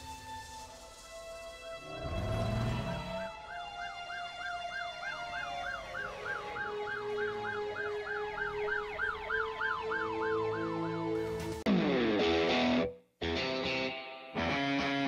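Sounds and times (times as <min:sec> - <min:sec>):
slow rising and falling siren: 0:00.0 - 0:11.2
fast wailing siren: 0:03.0 - 0:11.1.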